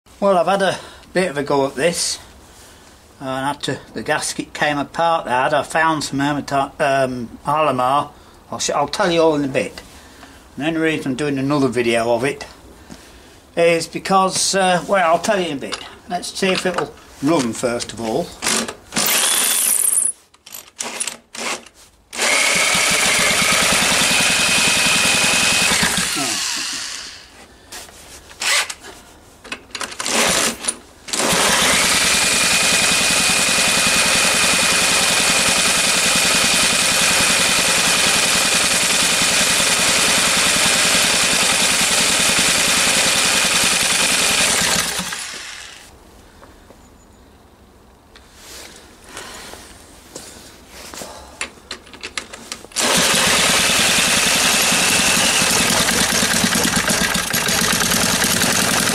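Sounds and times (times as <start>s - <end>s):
electric drill whine: 18.4s - 19.9s, 22.2s - 27.3s, 30.0s - 45.9s, 52.8s - 58.9s
engine turning over: 22.2s - 27.3s, 30.0s - 45.9s, 52.8s - 58.9s.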